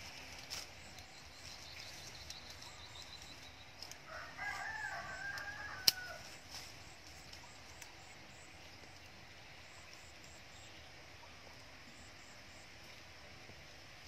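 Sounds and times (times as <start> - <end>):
rooster crowing: 4.0 - 6.3
scissors snipping a stem: 5.3 - 6.2.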